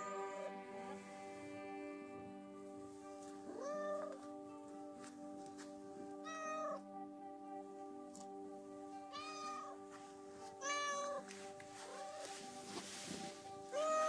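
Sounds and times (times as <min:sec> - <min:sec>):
background music with held notes: 0:00.0 - 0:14.0
cat meowing: 0:03.5 - 0:04.1, 0:06.2 - 0:06.8, 0:09.1 - 0:09.8, 0:10.6 - 0:11.3, 0:13.7 - 0:14.0.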